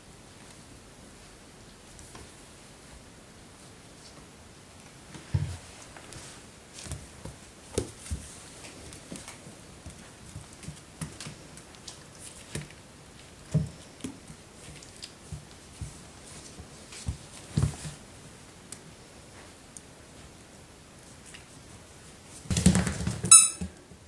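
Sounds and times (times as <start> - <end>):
paws and claws tapping floor: 5.1 - 18.1, 22.4 - 24.0.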